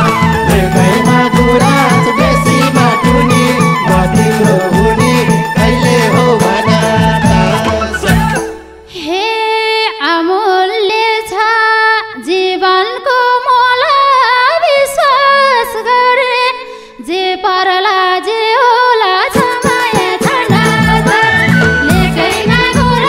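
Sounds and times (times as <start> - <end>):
woman singing into microphone: 0.0 - 23.0
singer breathing: 16.6 - 17.0.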